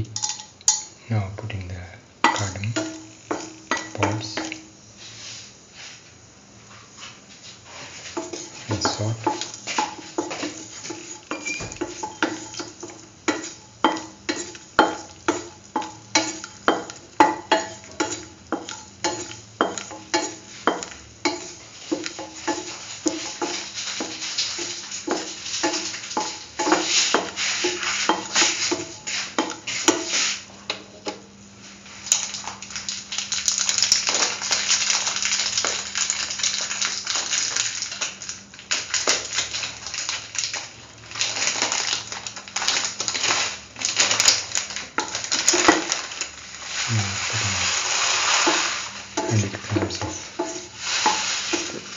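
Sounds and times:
frying sizzle: 0.0 - 1.0, 1.6 - 51.9
spatula tapping and scraping pan: 2.2 - 4.7, 8.0 - 31.2, 49.2 - 51.8.

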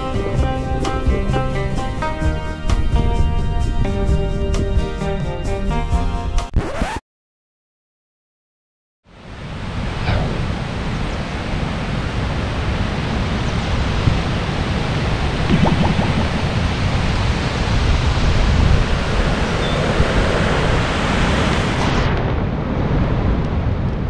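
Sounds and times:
strong wind gusting through trees: 9.1 - 24.0
wind buffeting microphone: 10.4 - 24.0.

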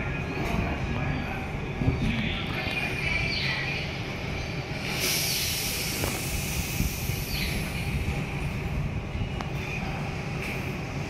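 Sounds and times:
electric train rumbling: 0.0 - 11.0
air brakes hissing: 4.8 - 7.9.

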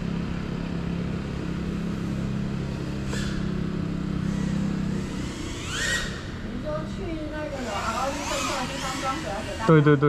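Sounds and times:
drone propellers buzzing: 0.0 - 10.0.

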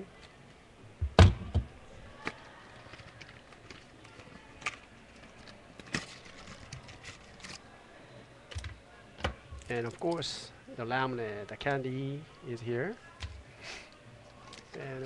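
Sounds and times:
cardboard and plastic clicks and rustles: 2.3 - 7.6.

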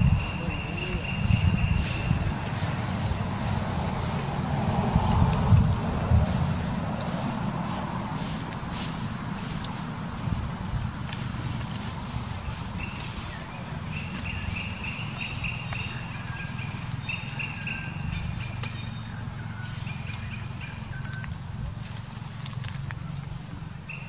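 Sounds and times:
high chirping calls: 0.0 - 3.2, 12.3 - 21.5
steady low rumble: 0.0 - 24.0.

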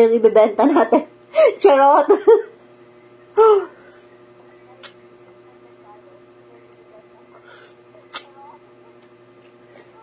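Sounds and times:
steady low hum: 0.0 - 10.0
woman humming: 3.3 - 3.9
mouth click while eating: 8.1 - 8.3.

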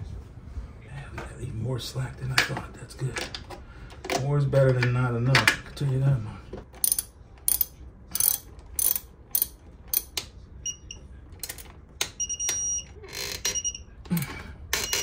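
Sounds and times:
wrench clicking: 6.8 - 10.3
torque wrench beeping: 12.2 - 14.0, 14.7 - 15.0.

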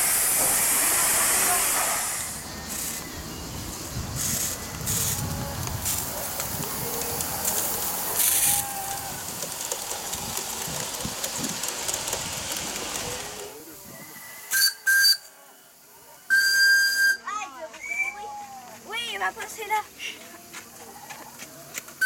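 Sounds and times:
steam hissing: 0.0 - 18.1
steam whistle toots: 14.0 - 15.3, 16.2 - 17.3.

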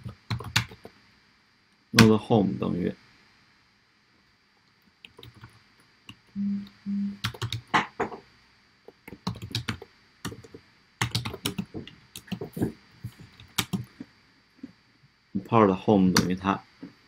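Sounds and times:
keyboard typing: 0.0 - 0.9, 5.0 - 7.7, 9.0 - 12.7, 13.3 - 13.9
short low hums: 6.4 - 7.2.

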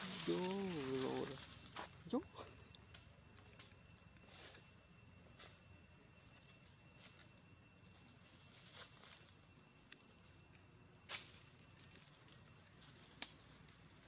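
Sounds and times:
dry leaf litter crackling: 0.0 - 2.2.

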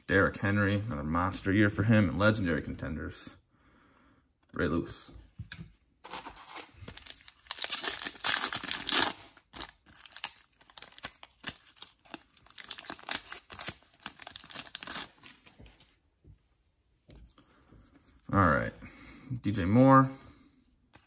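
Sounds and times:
foil wrapper tearing and crinkling: 6.1 - 15.5.

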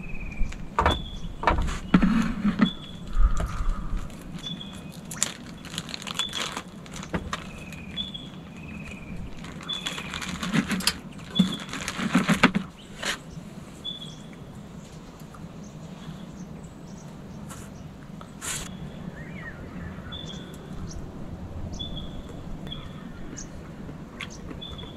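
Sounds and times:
plastic bag crinkling: 4.0 - 13.2.

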